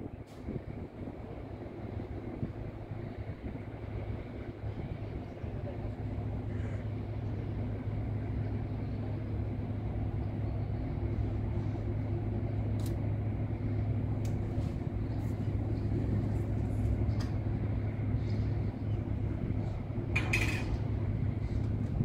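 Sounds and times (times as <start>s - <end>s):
ship engines droning: 0.0s - 22.0s.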